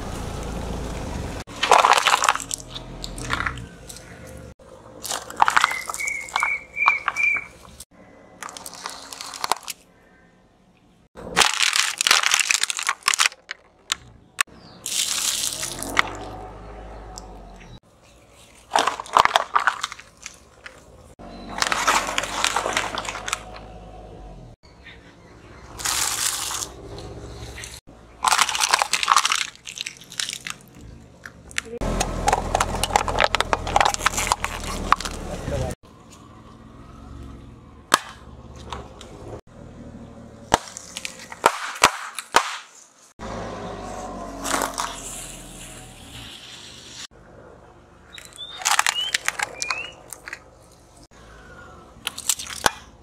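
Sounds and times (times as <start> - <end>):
tyre crushing objects: 1.5 - 4.2, 11.2 - 14.2, 18.5 - 23.7, 31.6 - 35.7
tyre crushing brittle objects: 1.5 - 7.8, 8.4 - 9.9, 11.2 - 16.4, 18.0 - 23.8, 25.8 - 36.2, 40.4 - 43.1, 44.0 - 45.8, 48.1 - 51.1, 52.0 - 53.0.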